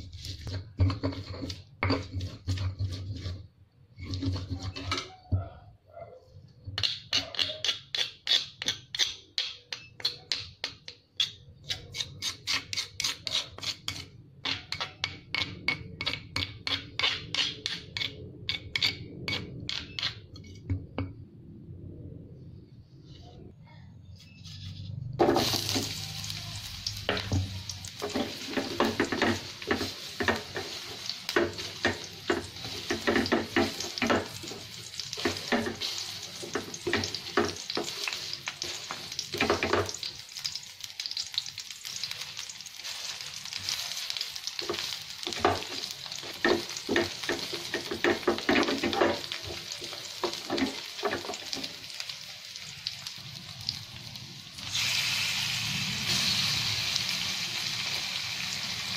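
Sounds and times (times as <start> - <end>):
onion sizzling in hot oil: 0.0 - 4.9, 25.2 - 58.9
wooden spatula scraping a pan: 0.0 - 5.2, 27.0 - 40.1, 42.8 - 51.8.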